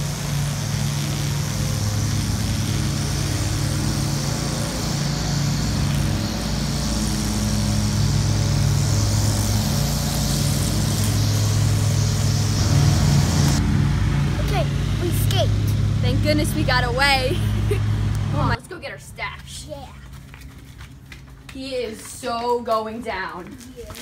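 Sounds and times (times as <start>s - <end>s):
engine drone with hiss: 0.0s - 18.6s.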